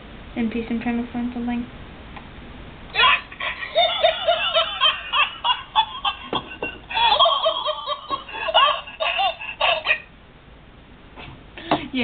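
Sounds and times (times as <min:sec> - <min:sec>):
high-pitched laughing: 0:02.9 - 0:10.1.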